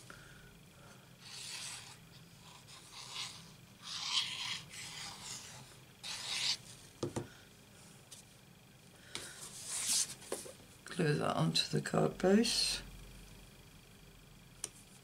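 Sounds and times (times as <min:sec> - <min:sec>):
cardstock rubbing and scraping: 0:01.2 - 0:06.7.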